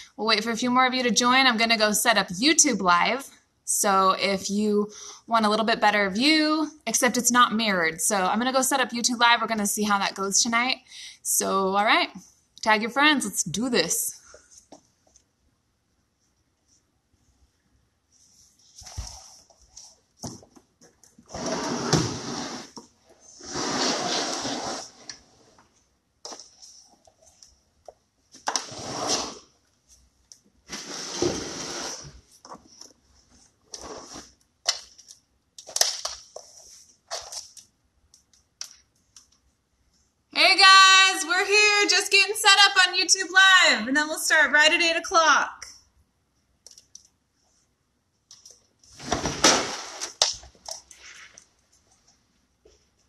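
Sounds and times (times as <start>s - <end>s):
rustling scrape: 18.1s - 20.0s, 21.2s - 25.7s, 28.5s - 29.5s, 30.7s - 34.4s.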